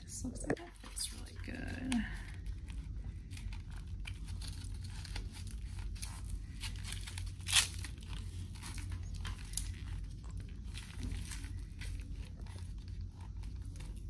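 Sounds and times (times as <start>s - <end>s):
hook-and-loop strap ripping: 4.0s - 9.8s.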